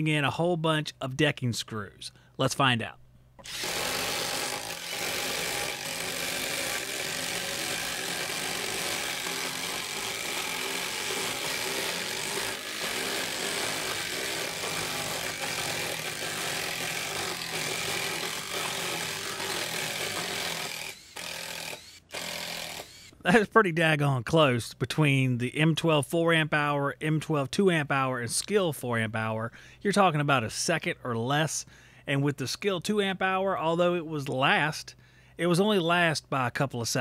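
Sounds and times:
impact drivers driving screws into wood: 3.4s - 23.2s.

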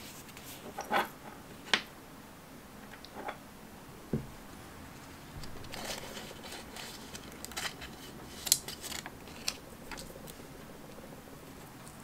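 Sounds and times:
knock on wooden tabletop: 4.1s - 4.3s
paper rustling and crinkling: 5.4s - 10.4s.

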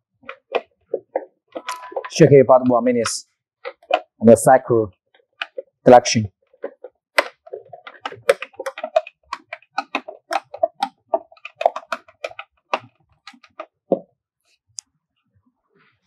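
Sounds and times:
screwdriver knocking in plastic bottle: 0.2s - 4.2s, 6.6s - 14.0s.

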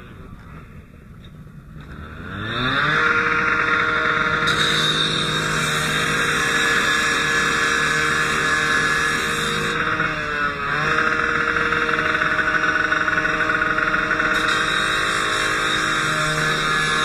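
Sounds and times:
engine running: 0.0s - 17.0s.

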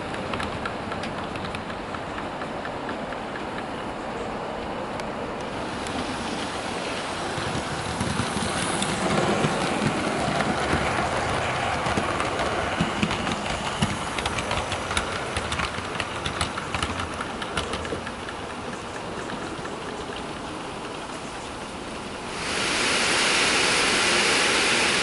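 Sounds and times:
wheels clicking over rail joints: 0.0s - 22.3s
model train rolling rumble: 5.2s - 25.0s.

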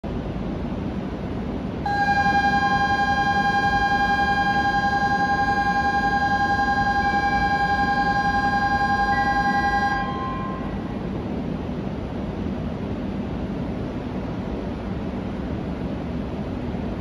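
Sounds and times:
train and station low hum: 0.0s - 17.0s
electronic departure bell ringing: 1.9s - 11.0s.

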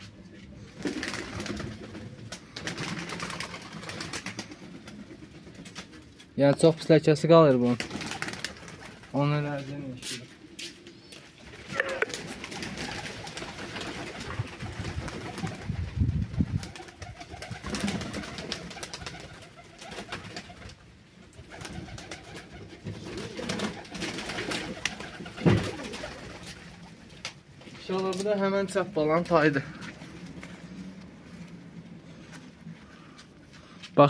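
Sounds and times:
pigeons cooing: 10.0s - 15.8s, 21.4s - 27.1s
rustling and clicks from handled birds: 26.4s - 28.5s.

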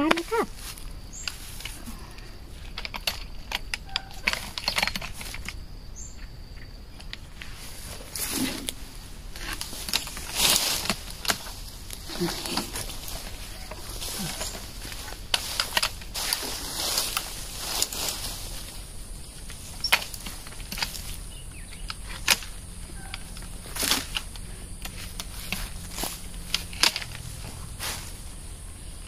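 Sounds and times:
leaves rustling: 0.0s - 29.0s
pruner blade and twigs snapping: 9.4s - 18.7s, 19.4s - 28.1s.

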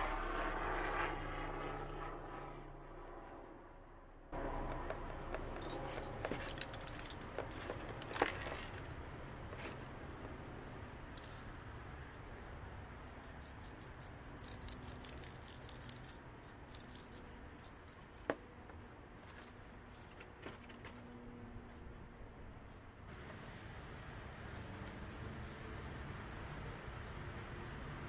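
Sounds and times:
low steady hum: 0.0s - 28.0s
small metal parts clinking: 5.5s - 8.8s, 11.1s - 11.5s, 13.3s - 18.3s.

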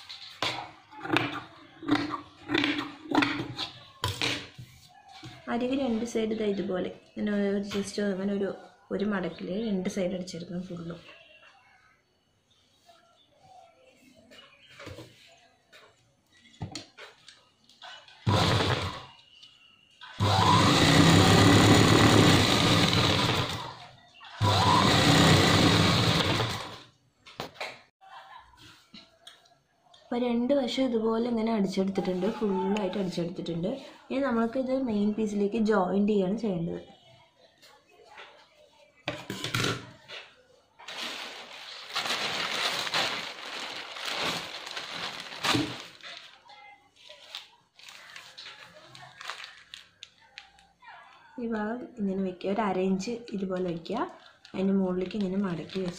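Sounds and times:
sewing machine stitching: 18.3s - 19.1s, 20.2s - 23.8s, 24.4s - 26.8s
cloth rustling and crumpling: 40.8s - 50.5s.

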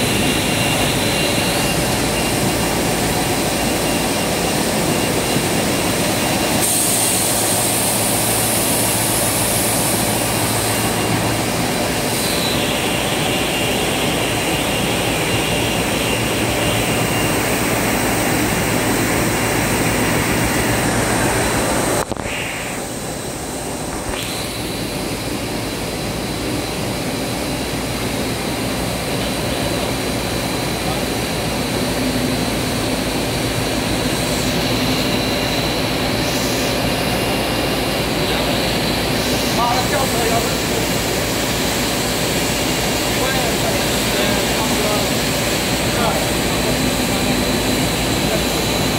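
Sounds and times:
industrial machine noise: 0.0s - 48.9s
high whine sliding down: 17.0s - 26.0s.

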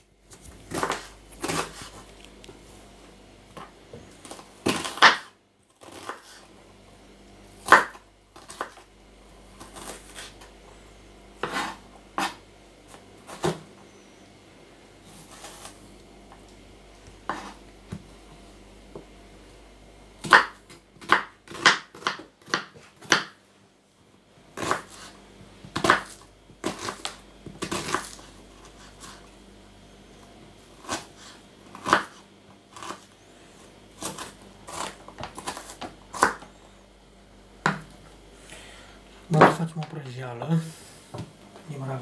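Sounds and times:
knife chopping on wooden board: 3.6s - 6.2s, 7.6s - 8.8s, 11.4s - 12.4s, 17.2s - 18.0s, 20.2s - 23.4s, 24.6s - 25.1s, 25.7s - 28.2s, 31.7s - 32.2s, 34.0s - 36.5s, 37.6s - 37.9s.

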